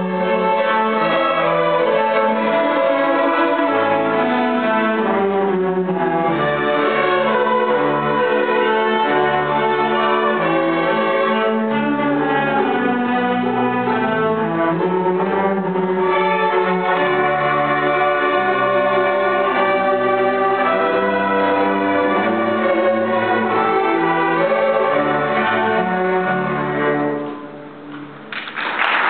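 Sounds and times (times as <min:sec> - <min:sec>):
string orchestra playing: 0:00.0 - 0:28.1
audience applause: 0:28.3 - 0:29.0.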